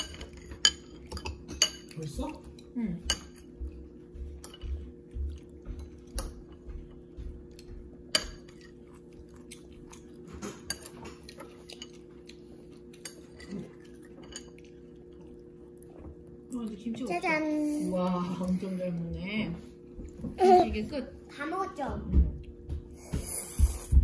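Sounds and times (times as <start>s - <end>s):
cutlery clinking against a bowl: 0.0s - 4.9s, 5.8s - 8.9s, 10.0s - 14.8s.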